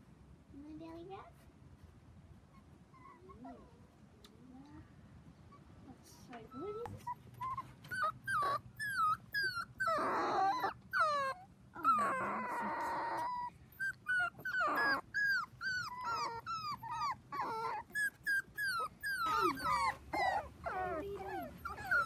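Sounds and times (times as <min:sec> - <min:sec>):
puppy whimpering: 0:02.5 - 0:03.8, 0:06.3 - 0:22.0.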